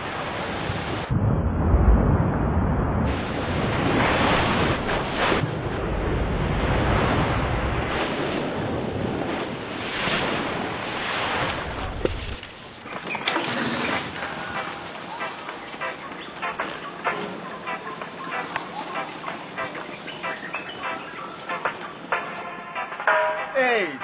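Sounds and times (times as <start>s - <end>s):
rushing water and spray: 0.0s - 1.2s, 3.0s - 16.0s
skis carving through water: 3.1s - 5.7s, 6.7s - 16.3s.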